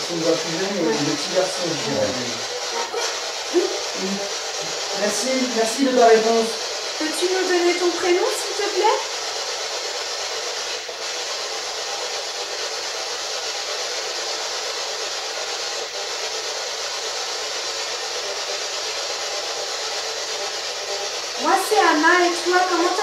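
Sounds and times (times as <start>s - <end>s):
radio static hiss: 0.0s - 6.6s.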